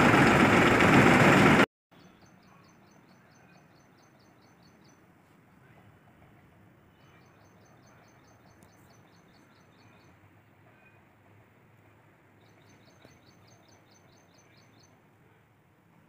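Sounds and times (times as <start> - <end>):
small bird singing: 2.0 - 5.1, 6.9 - 10.2, 12.4 - 15.0.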